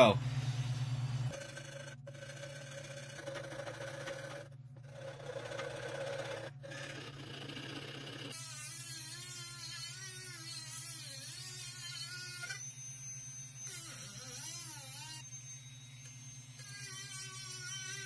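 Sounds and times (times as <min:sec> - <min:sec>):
rotary tool grinding wood: 0:01.3 - 0:18.0.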